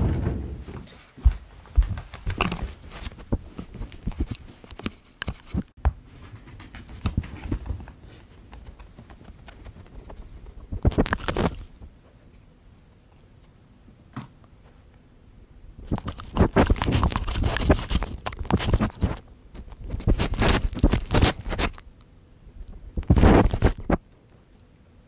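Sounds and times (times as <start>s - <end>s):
dog licking camera: 15.8s - 21.8s.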